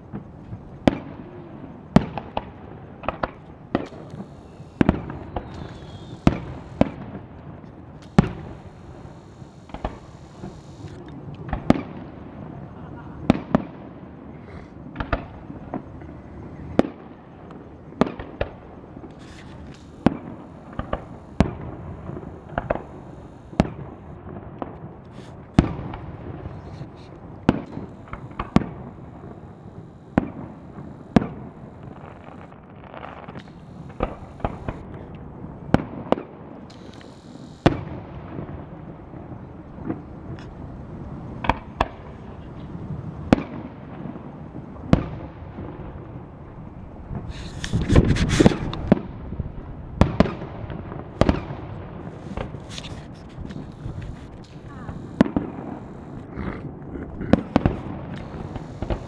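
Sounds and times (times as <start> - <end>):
fireworks shells bursting: 0.1 - 12.1, 18.0 - 38.5, 47.2 - 49.0, 51.1 - 56.3, 57.3 - 59.0.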